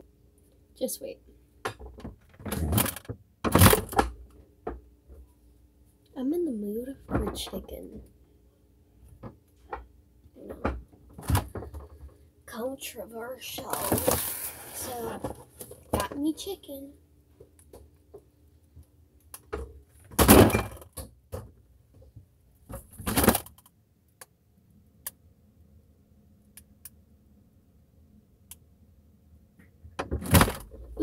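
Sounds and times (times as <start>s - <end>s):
fridge low hum: 0.0s - 31.0s
fridge door banging shut: 20.1s - 20.9s, 30.0s - 30.7s.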